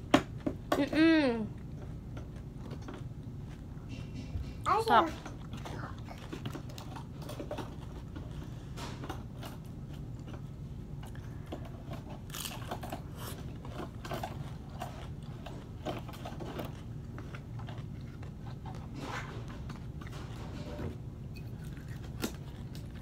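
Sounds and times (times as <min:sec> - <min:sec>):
crunchy food being chewed: 0:05.4 - 0:20.6, 0:21.3 - 0:23.0.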